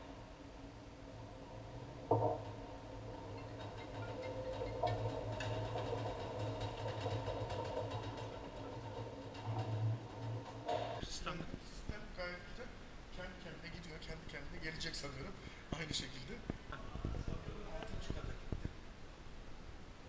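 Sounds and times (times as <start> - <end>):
machinery clunk: 2.1 - 11.1.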